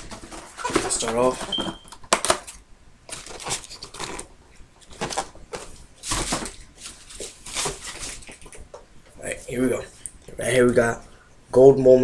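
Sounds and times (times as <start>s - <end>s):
paper rustling and crinkling: 0.0s - 8.6s.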